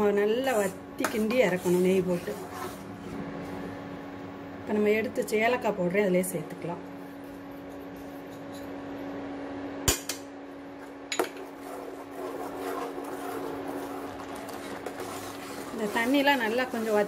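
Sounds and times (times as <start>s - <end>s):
steady hum: 0.0s - 17.0s
ladle stirring thick milk: 0.4s - 3.3s, 11.4s - 17.0s.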